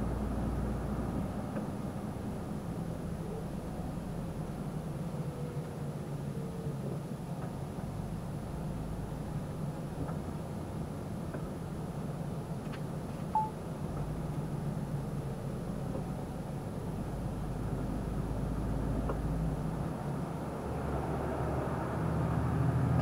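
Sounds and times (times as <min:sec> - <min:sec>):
lorry engine and road noise: 0:00.0 - 0:23.0
short beep: 0:13.4 - 0:13.6.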